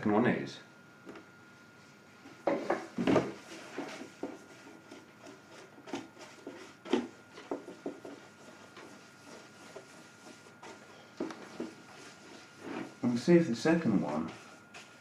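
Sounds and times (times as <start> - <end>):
light tapping and rubbing: 2.5 - 13.2.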